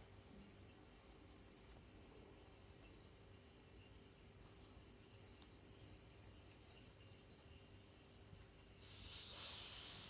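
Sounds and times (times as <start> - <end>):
steady hiss: 0.0 - 10.0.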